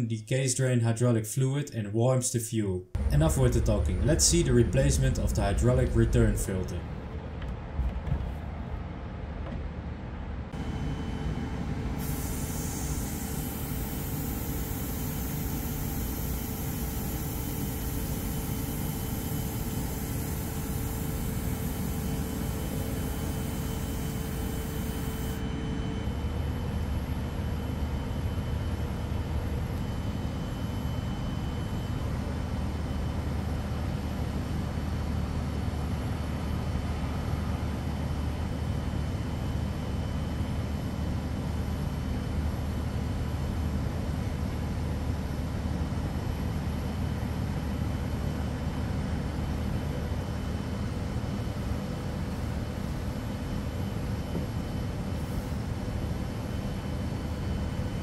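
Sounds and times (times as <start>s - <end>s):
machinery drone: 3.0s - 7.4s, 10.5s - 32.6s
faint steady whine: 3.0s - 7.5s, 10.4s - 58.0s.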